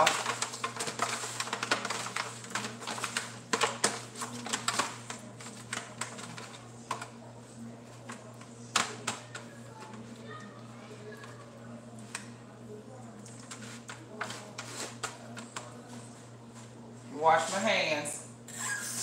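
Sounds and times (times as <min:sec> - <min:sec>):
chicken being mixed in a pan: 0:00.0 - 0:07.2, 0:13.3 - 0:15.7.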